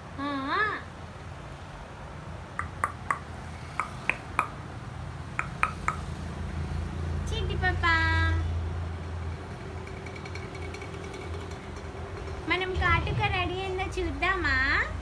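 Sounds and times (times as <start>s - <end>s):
quick tongue clicks: 2.6s - 4.6s, 5.4s - 6.1s.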